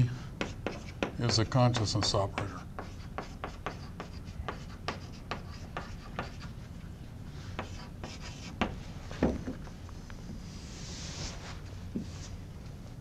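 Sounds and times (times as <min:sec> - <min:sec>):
chalk tapping and scraping on blackboard: 0:00.4 - 0:06.6, 0:07.5 - 0:09.4.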